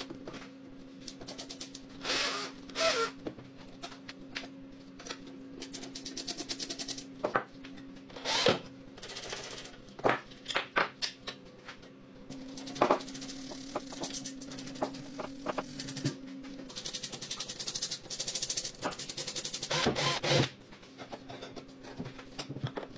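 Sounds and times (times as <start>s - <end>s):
low steady hum: 9.7s - 22.9s.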